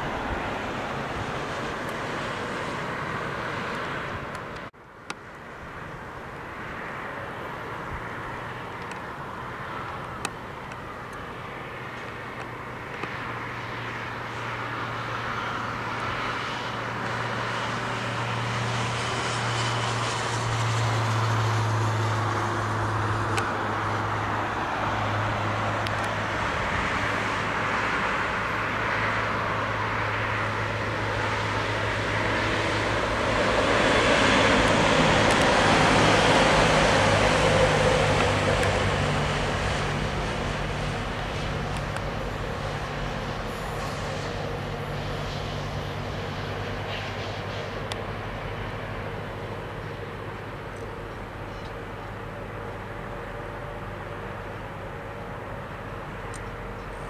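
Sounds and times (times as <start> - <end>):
train running noise: 30.3 - 57.0.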